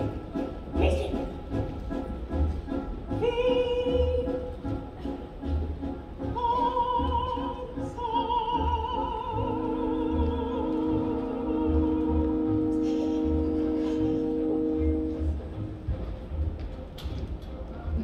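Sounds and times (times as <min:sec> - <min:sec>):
low orchestral chords: 0:00.0 - 0:18.0
theatre orchestra: 0:00.0 - 0:18.0
woman singing with vibrato: 0:03.2 - 0:04.6, 0:06.3 - 0:12.8.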